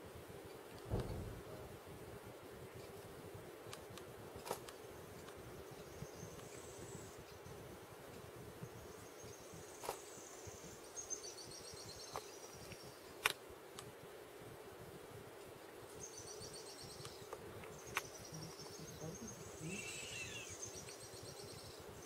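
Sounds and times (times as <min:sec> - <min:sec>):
steady low hum: 0:00.8 - 0:11.0
small birds chirping: 0:04.6 - 0:13.2, 0:15.2 - 0:22.0.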